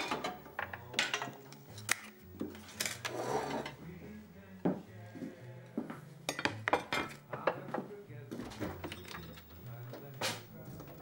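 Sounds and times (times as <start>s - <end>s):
dishes and cutlery clinking: 0.0s - 3.8s, 6.3s - 11.0s.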